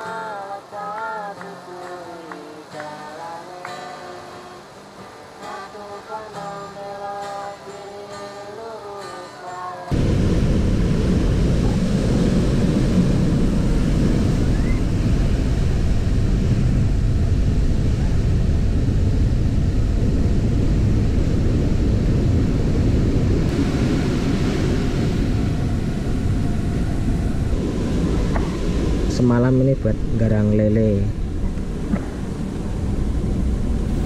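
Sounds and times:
singing with guitar: 0.0 - 10.1
surf washing onto sand: 9.9 - 19.8, 20.7 - 34.0
wind rumble on microphone: 9.9 - 34.0.

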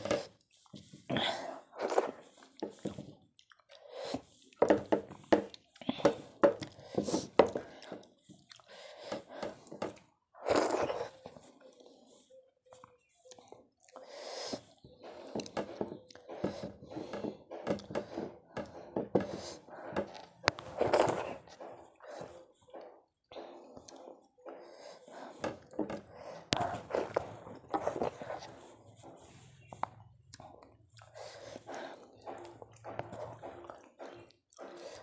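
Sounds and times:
mouth chewing: 0.0 - 35.0
fingers mashing food on a plate: 14.8 - 35.0.

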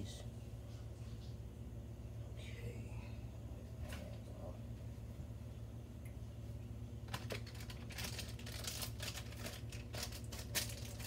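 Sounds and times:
steady low hum: 0.0 - 11.0
crinkling of dressing packaging: 7.1 - 11.0.

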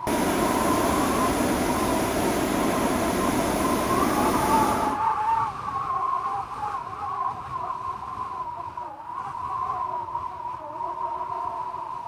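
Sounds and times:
propane burner roaring: 0.0 - 5.0.

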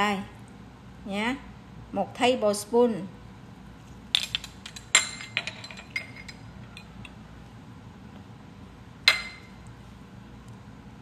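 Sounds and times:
glass bowls clinking: 4.2 - 7.1, 9.1 - 9.6.

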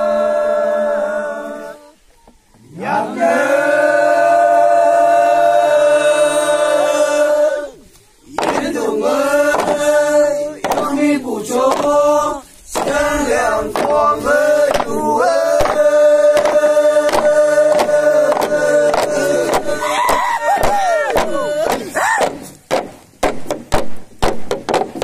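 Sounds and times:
men chanting in unison: 0.0 - 2.0, 2.6 - 22.4
sticks knocking on bamboo log: 8.3 - 8.8, 9.5 - 9.8, 10.6 - 11.0, 11.7 - 12.0, 12.7 - 13.0, 13.7 - 14.0, 14.7 - 15.0, 15.6 - 25.0.

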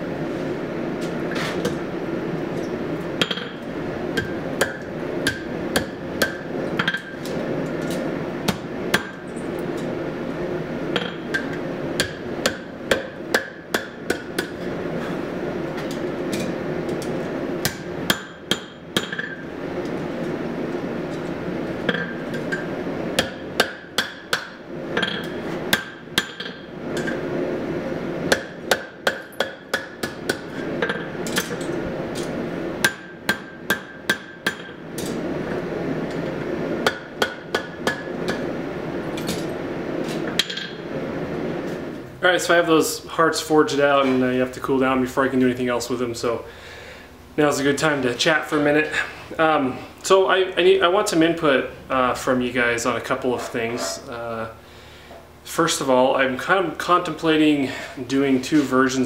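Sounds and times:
forge running: 0.0 - 53.7
hammer striking metal on anvil: 3.2 - 3.6, 4.2 - 7.2, 11.0 - 14.6, 17.6 - 19.4, 21.9 - 27.2, 28.3 - 35.2, 36.8 - 38.4.

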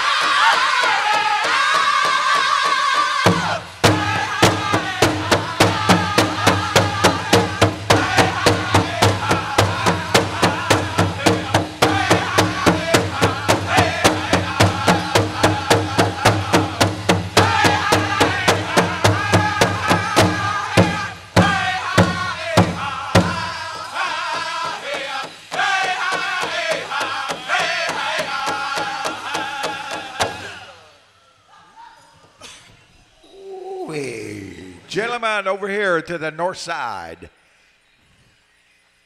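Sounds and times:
group of singers chanting: 0.0 - 31.0
large drum beating: 3.2 - 23.8.

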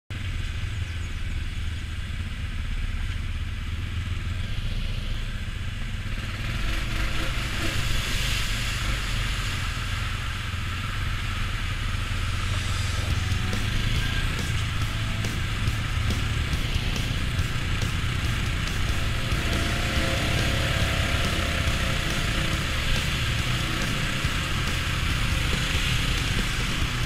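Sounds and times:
atv engine running: 0.1 - 27.0
water splashing from tyres: 6.3 - 27.0.

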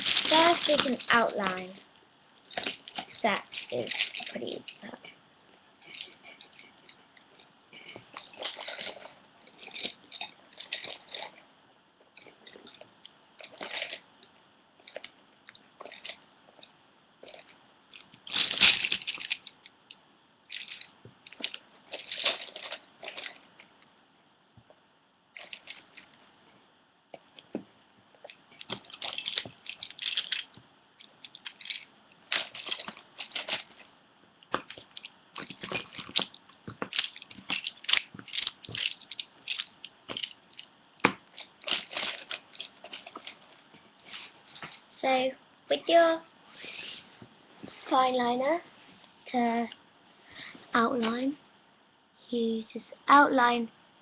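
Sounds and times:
pens and pencils rattling: 0.0 - 1.8, 2.4 - 11.4, 12.1 - 14.1, 14.8 - 19.7, 20.5 - 23.7, 25.4 - 26.2, 28.2 - 44.8.

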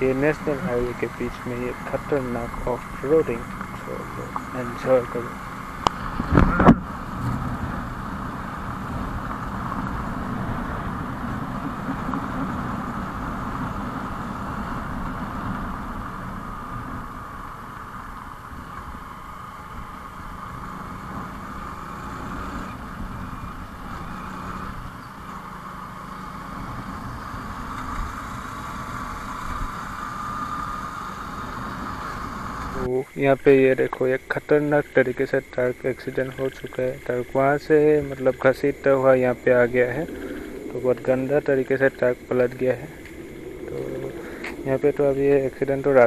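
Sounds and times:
motorcycle engine running: 0.0 - 32.9, 36.0 - 46.0
road rumble: 0.0 - 46.0
wind noise on microphone: 5.8 - 20.4.

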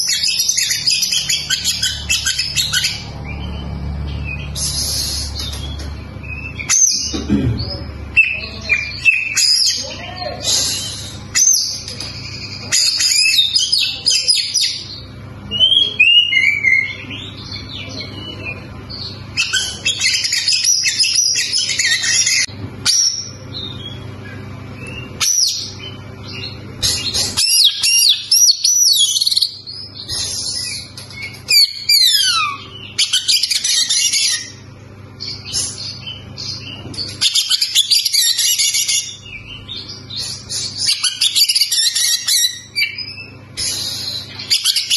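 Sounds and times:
bird singing: 0.0 - 44.9.

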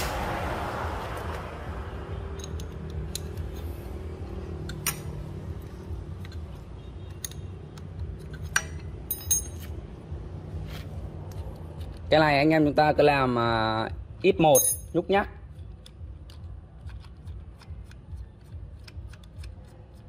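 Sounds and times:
low background hum: 2.0 - 12.1
metal clicks and clinks: 2.3 - 3.7, 6.2 - 9.8
short metallic ring: 8.8 - 9.7.

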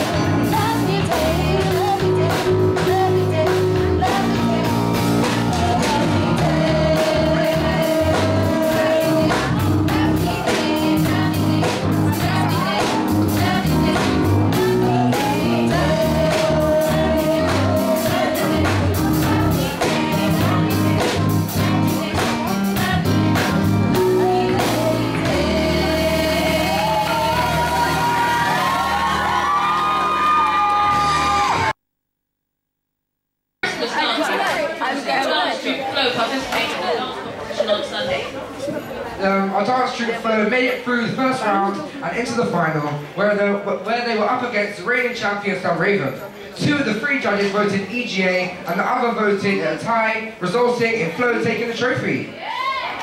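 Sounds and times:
group of young singers: 0.0 - 29.6
deep bass: 0.0 - 29.9
drum kit: 0.0 - 31.8.

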